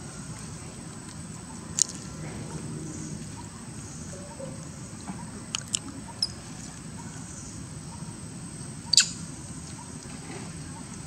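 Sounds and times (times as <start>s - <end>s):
macaques squeaking: 8.9s - 10.0s.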